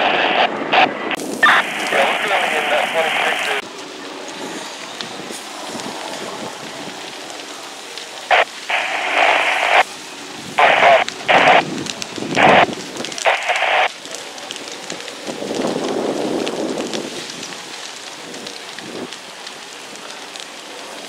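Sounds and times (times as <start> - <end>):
steady low hiss: 1.2 - 3.6, 8.0 - 13.9
water stream hissing and spattering: 1.2 - 3.6, 8.3 - 13.9.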